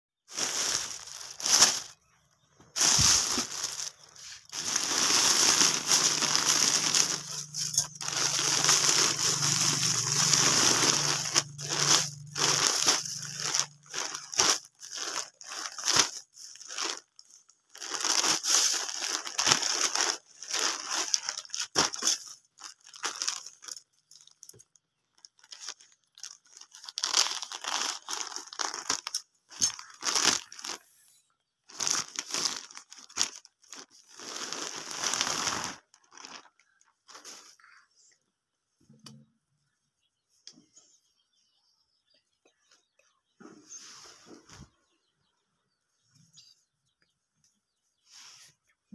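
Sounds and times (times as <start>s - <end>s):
plastic packaging crinkling: 0.3s - 2.0s, 2.7s - 31.0s, 31.7s - 37.7s.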